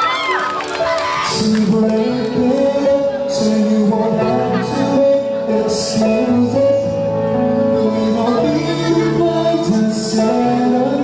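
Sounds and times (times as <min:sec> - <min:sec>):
backing track: 0:00.0 - 0:11.0
man singing a slow pop song: 0:01.2 - 0:11.0.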